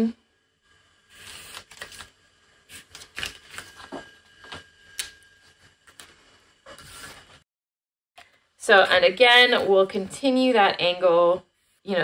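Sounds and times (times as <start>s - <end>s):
paper rustling: 1.1s - 2.1s, 2.7s - 4.0s.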